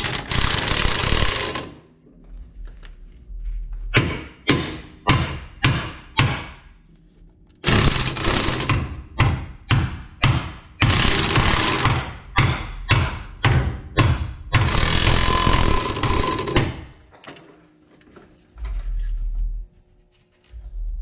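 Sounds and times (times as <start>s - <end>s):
impact wrench: 0.0s - 1.8s, 7.6s - 16.9s
hammer blows ringing on metal: 4.0s - 6.6s, 8.7s - 15.7s.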